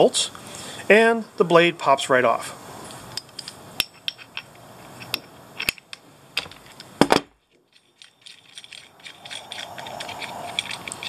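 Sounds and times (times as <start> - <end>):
socket ratchet clicking: 7.7 - 11.0.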